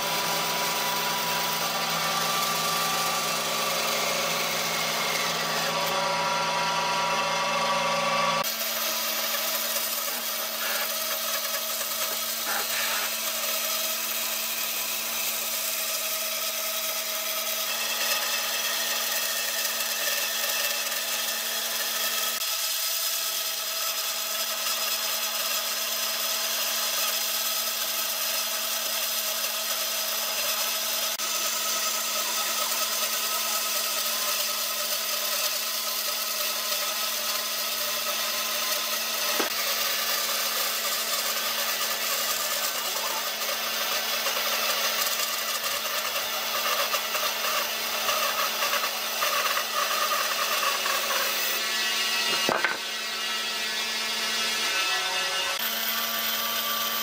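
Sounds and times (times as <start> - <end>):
power tool working wood: 0.0 - 57.0.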